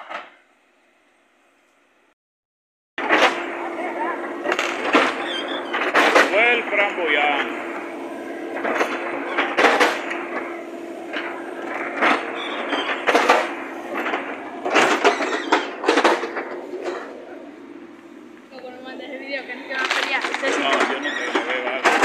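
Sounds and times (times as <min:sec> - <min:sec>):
diesel engine humming: 0:03.0 - 0:22.0
sharp knocks and clanks: 0:04.5 - 0:07.7, 0:08.5 - 0:17.3.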